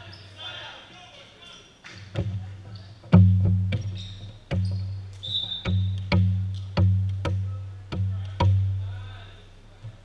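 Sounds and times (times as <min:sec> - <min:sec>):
ball bouncing on wooden floor: 0:03.1 - 0:08.6.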